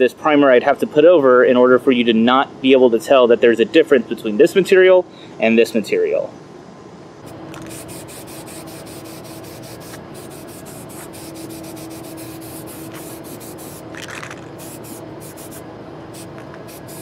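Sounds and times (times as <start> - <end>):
aerosol spray hissing: 7.3 - 17.0.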